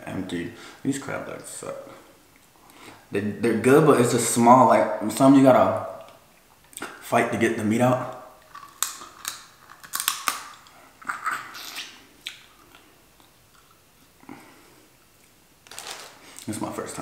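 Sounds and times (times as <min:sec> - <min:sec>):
man chewing: 0:08.4 - 0:15.4.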